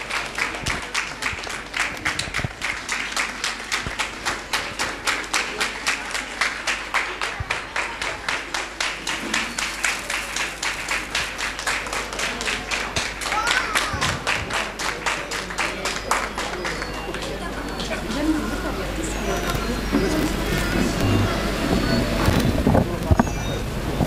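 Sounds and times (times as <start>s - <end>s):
audience applauding: 0.0s - 18.3s.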